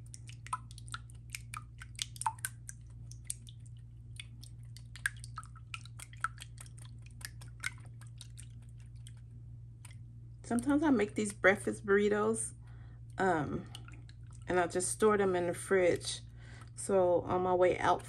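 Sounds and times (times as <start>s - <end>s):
wet squish of egg: 0.0s - 10.2s.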